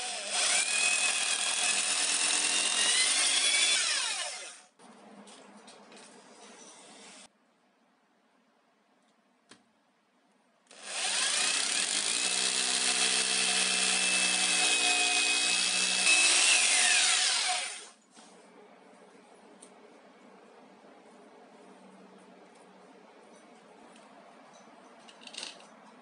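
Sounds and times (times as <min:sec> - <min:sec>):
hammer drill boring into wall: 0:00.0 - 0:04.6, 0:10.7 - 0:18.0.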